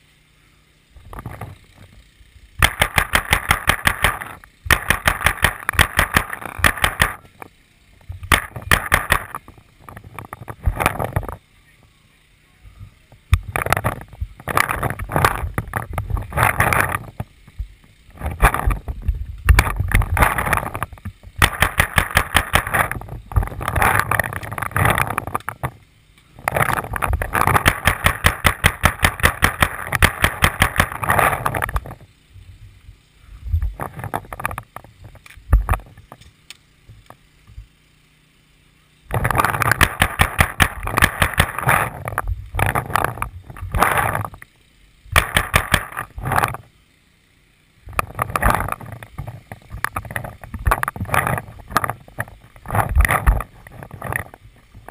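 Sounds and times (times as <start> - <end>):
paintball marker firing: 2.6 - 7.4, 8.2 - 9.5, 19.5 - 25.6, 26.6 - 32.0, 39.1 - 44.0, 45.1 - 46.2.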